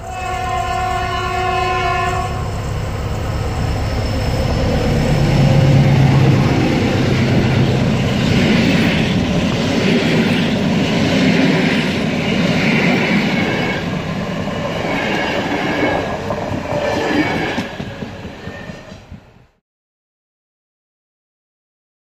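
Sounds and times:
high wheel squeal: 0.0 - 9.3
train wheels clattering on track: 2.1 - 19.6.

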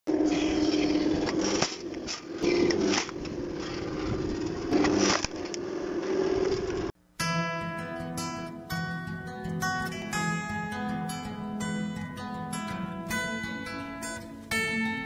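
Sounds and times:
log splitter humming: 0.1 - 6.9.

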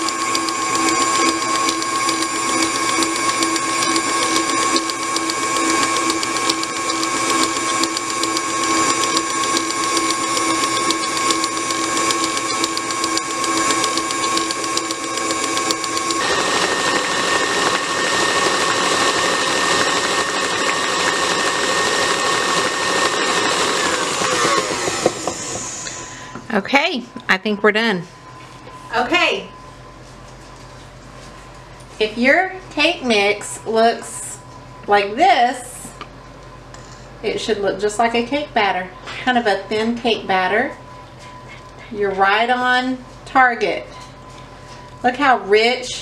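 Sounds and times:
stand mixer motor whining: 0.0 - 26.5.

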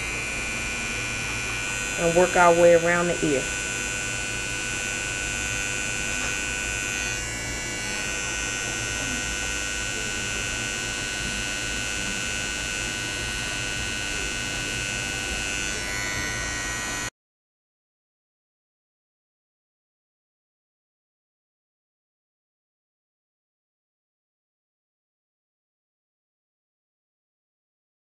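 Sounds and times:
electric hair clipper buzzing: 0.0 - 17.1.

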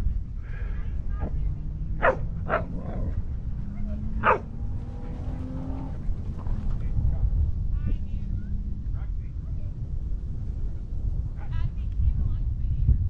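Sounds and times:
steady low rumble: 0.0 - 13.0
dog barking: 2.0 - 4.6.

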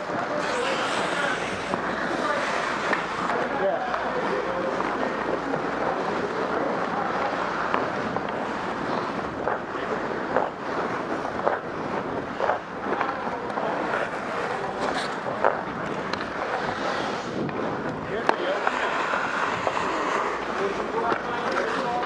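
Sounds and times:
skate blades scraping on ice: 0.0 - 22.0
wind on microphone: 15.6 - 18.2.

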